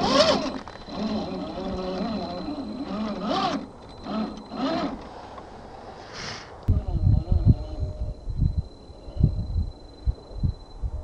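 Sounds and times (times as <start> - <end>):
electric motor and gears whining: 0.0 - 5.5, 6.7 - 8.3.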